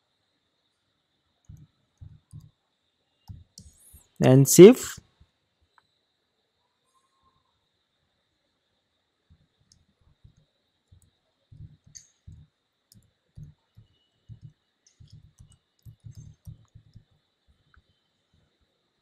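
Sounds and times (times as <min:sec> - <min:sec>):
typing on a computer keyboard: 0:09.7 - 0:17.8.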